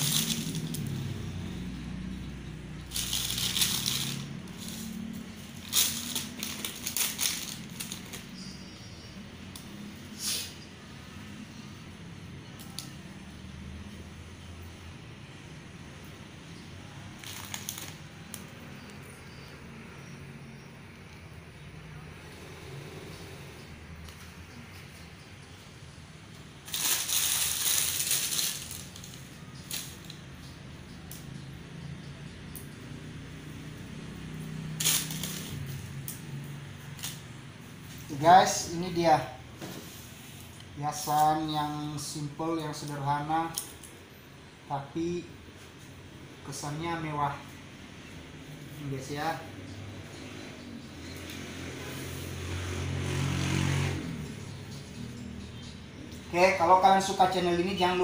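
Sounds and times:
plastic bag crinkling: 0.0 - 1.0, 2.8 - 8.4, 17.2 - 18.4, 26.6 - 30.2, 34.8 - 35.8.

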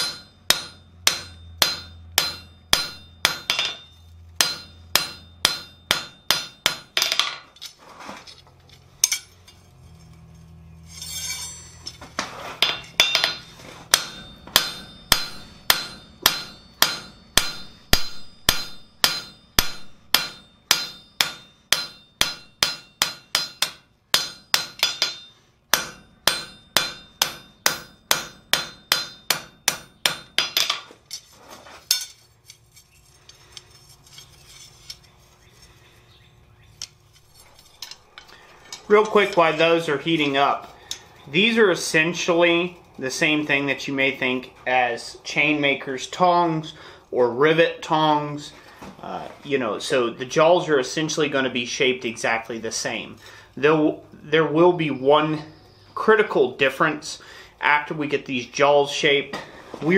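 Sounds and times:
hammer striking steel on anvil: 0.0 - 7.7, 9.0 - 12.0, 12.6 - 31.2.

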